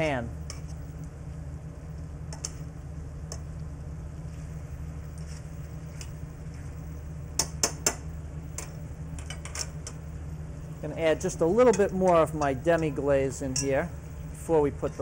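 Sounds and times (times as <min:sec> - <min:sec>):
steady low hum: 0:00.0 - 0:15.0
tongs clicking against a pan: 0:03.3 - 0:03.5.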